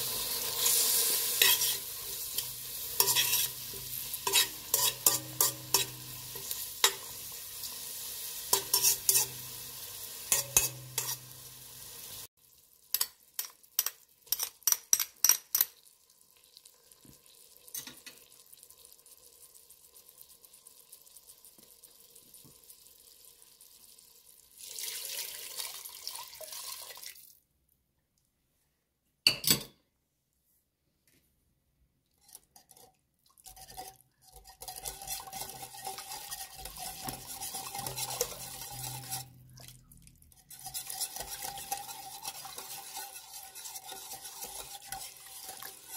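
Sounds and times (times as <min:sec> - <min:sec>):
utensil scraping metal pot: 0:00.0 - 0:11.6, 0:12.9 - 0:15.7, 0:32.2 - 0:45.9
food sizzling in oil: 0:00.0 - 0:24.1, 0:34.5 - 0:39.6, 0:40.4 - 0:45.9.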